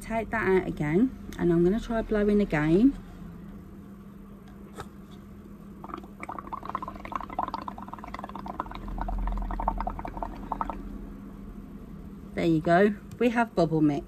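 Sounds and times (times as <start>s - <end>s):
steady low hum: 0.0s - 14.0s
liquid bubbling and gurgling: 5.8s - 11.0s.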